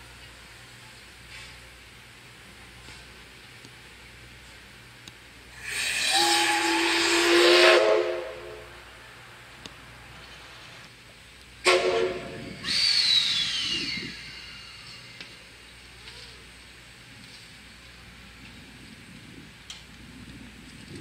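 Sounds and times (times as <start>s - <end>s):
steam rushing: 5.5s - 9.0s, 11.6s - 21.0s
steam whistle blasts: 5.6s - 8.7s, 11.6s - 15.2s.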